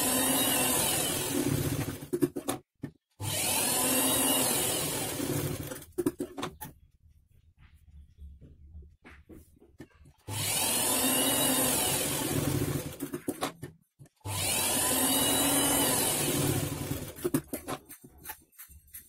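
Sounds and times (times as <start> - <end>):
sewing machine stitching: 0.0 - 2.6, 3.2 - 6.5, 10.2 - 13.6, 14.2 - 18.4.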